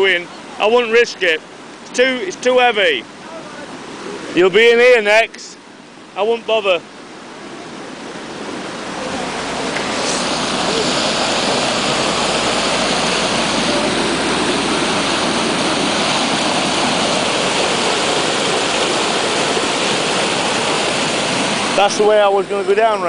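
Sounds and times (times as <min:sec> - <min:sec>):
floodwater rushing: 0:00.0 - 0:23.0.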